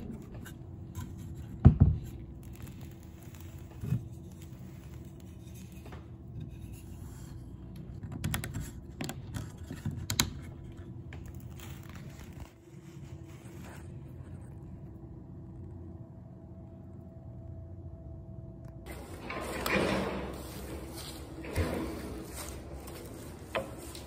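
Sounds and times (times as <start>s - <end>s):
low hum: 9.1s - 24.0s
handling scrapes: 11.2s - 14.8s, 18.8s - 24.0s.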